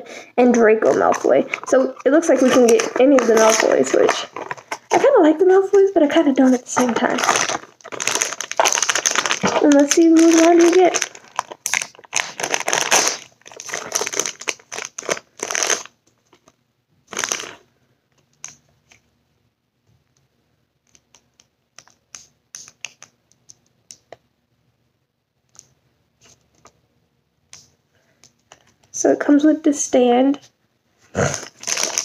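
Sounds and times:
packaging rustling and crinkling: 0:00.8 - 0:17.6, 0:31.2 - 0:32.0.

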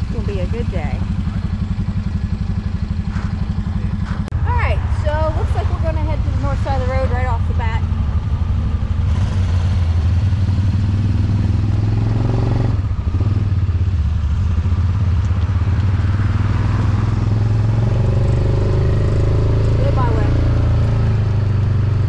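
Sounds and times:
utility vehicle engine idling: 0:00.0 - 0:16.5.

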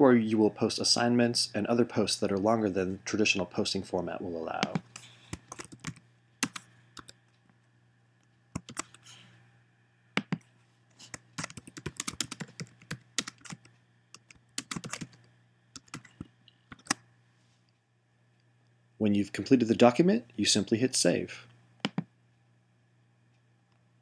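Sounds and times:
faint low hum: 0:00.0 - 0:24.0
keyboard typing: 0:04.6 - 0:07.2, 0:08.6 - 0:09.1, 0:10.2 - 0:10.4, 0:11.0 - 0:17.0, 0:21.8 - 0:22.1.

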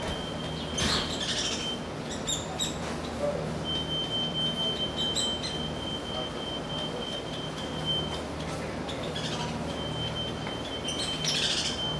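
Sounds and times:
high electronic car beeping: 0:09.7 - 0:11.9.

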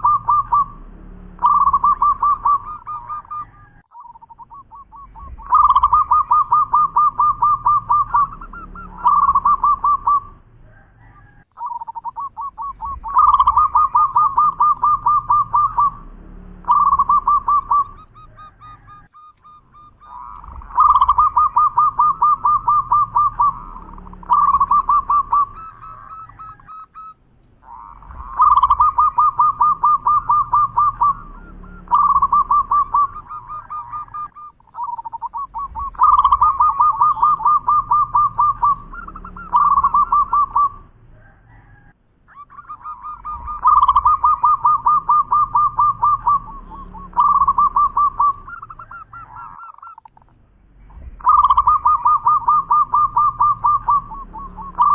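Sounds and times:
dove cooing trill: 0:00.0 - 0:50.3, 0:51.0 - 0:54.9.

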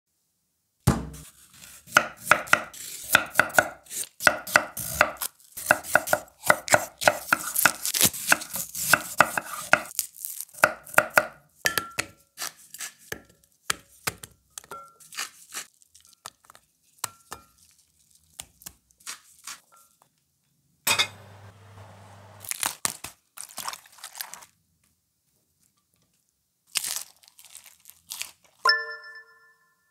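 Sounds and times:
knife chopping on wooden board: 0:00.9 - 0:09.9, 0:10.6 - 0:12.1
slices clinking in glass bowl: 0:20.9 - 0:21.4.

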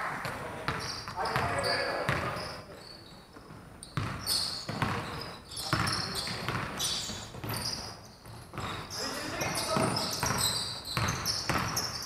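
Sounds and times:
basketball bouncing on hardwood: 0:01.4 - 0:02.3, 0:04.0 - 0:05.0, 0:05.7 - 0:08.8, 0:09.7 - 0:11.9.

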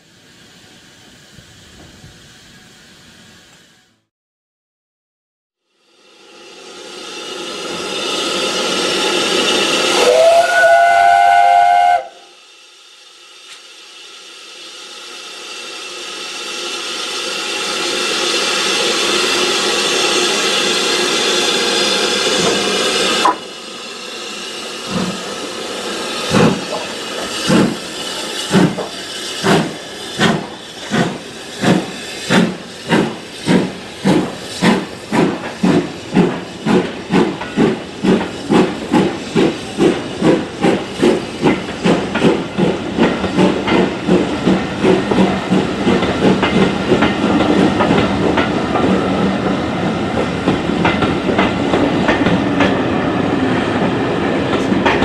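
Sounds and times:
steam hissing: 0:00.0 - 0:04.1, 0:05.7 - 0:55.0
steam locomotive whistle: 0:09.0 - 0:12.4.

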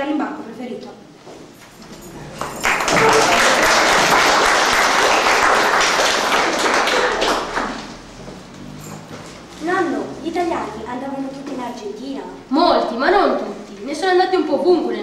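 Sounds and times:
audience applauding: 0:02.1 - 0:08.1.

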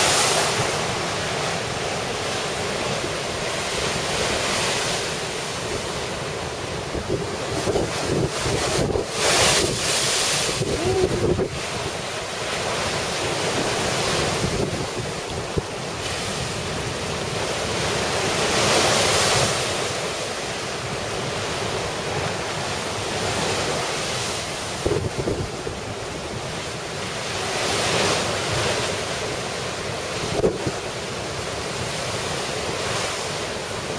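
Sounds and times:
surf crashing against seawall: 0:00.0 - 0:33.9
wind buffeting microphone: 0:06.9 - 0:11.8.

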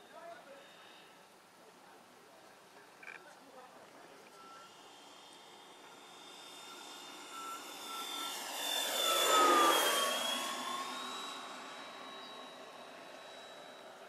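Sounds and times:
electric ducted fans whining: 0:03.9 - 0:14.0.

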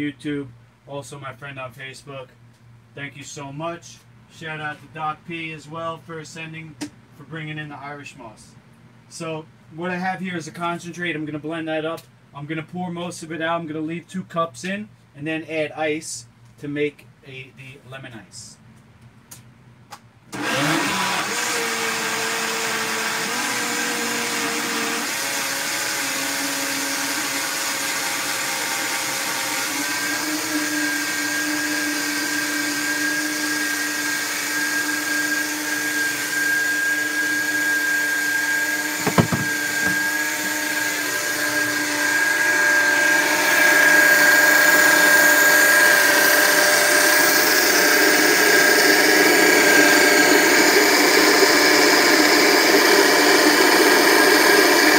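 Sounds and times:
blender motor running: 0:20.3 - 0:54.9
sharp knock: 0:39.0 - 0:40.1.

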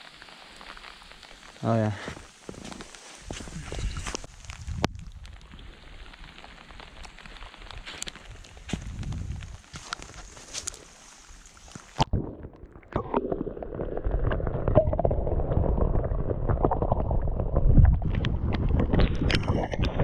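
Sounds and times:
rain hiss: 0:00.0 - 0:12.0
footsteps on wet pavement: 0:00.4 - 0:04.9, 0:05.9 - 0:12.0.

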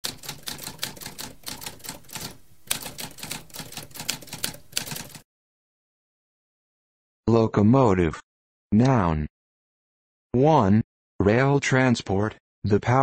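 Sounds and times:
typewriter key clacks: 0:00.0 - 0:05.2.

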